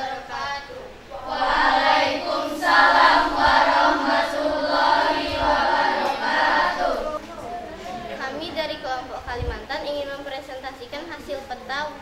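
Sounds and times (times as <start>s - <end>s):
young voices singing in unison: 0.0s - 7.3s.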